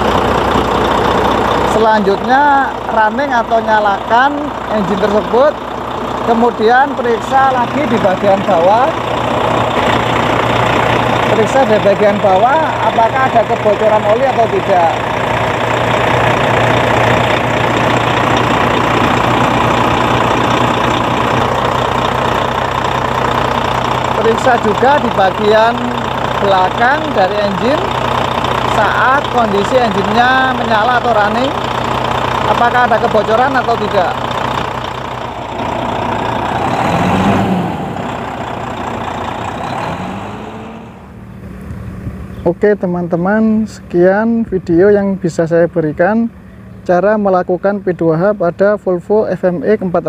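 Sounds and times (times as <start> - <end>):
truck diesel engine idling: 0.0 - 50.0.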